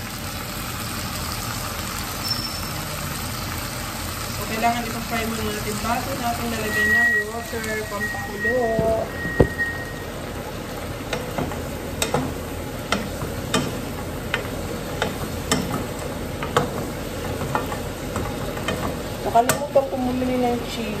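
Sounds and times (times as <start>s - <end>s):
food sizzling in a pot: 0.0s - 21.0s
wooden spoon clicking against pot: 12.9s - 19.6s.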